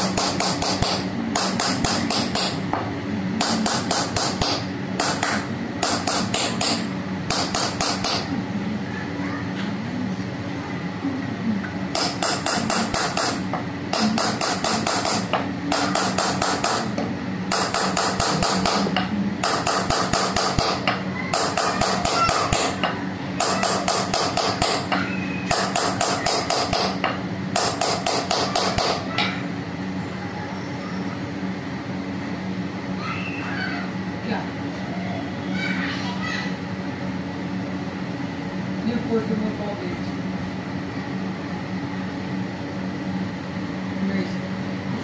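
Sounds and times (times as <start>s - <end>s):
hammer tapping on metal punch: 0.0s - 8.3s, 11.9s - 29.3s.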